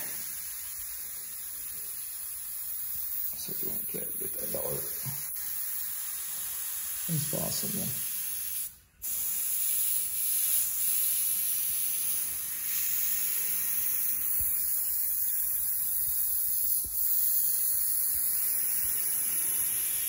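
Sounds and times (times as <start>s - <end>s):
airbrush hissing: 0.0s - 20.0s.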